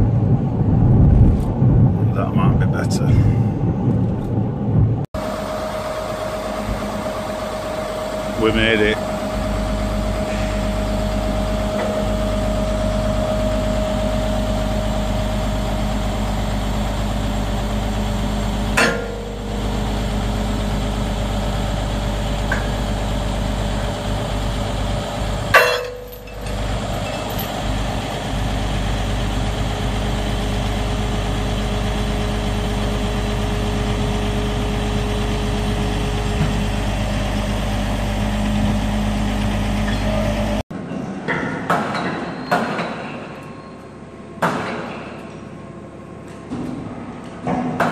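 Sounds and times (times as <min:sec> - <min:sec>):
diesel engine running: 0:00.0 - 0:40.6
sharp metal clunks: 0:18.8 - 0:19.3, 0:25.6 - 0:27.3.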